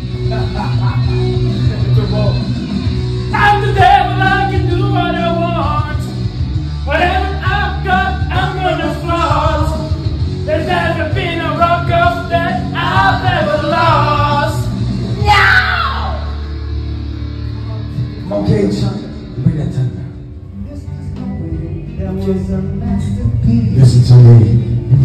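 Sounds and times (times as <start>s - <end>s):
rock backing track: 0.0s - 23.7s
man singing into microphone: 3.3s - 6.1s, 6.8s - 9.9s, 10.5s - 14.7s, 20.8s - 25.0s.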